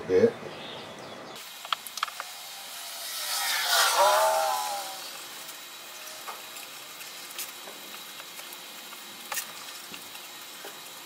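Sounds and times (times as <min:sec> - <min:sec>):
steady hiss: 0:01.4 - 0:11.0.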